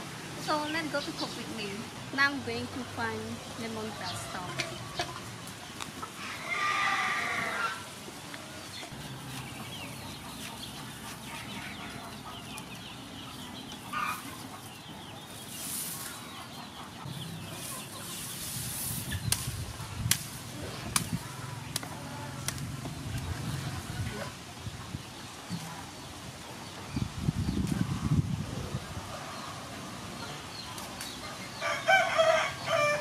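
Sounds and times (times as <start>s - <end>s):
poultry clucking: 0.5s - 33.0s
grass rustling: 5.3s - 12.7s, 13.8s - 24.5s
lemongrass stalks snapping: 19.3s - 23.0s.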